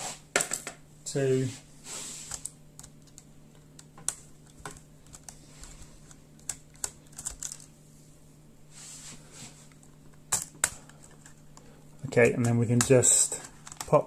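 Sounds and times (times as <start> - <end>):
soft rustle: 8.0 - 9.8.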